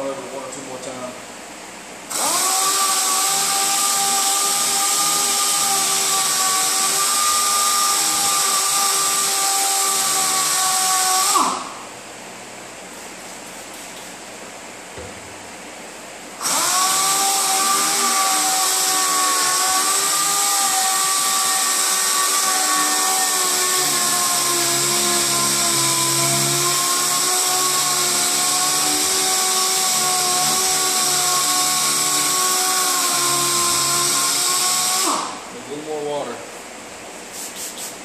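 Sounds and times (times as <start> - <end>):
air sander whining: 2.1 - 11.9, 16.4 - 36.0
air hissing: 37.2 - 38.0.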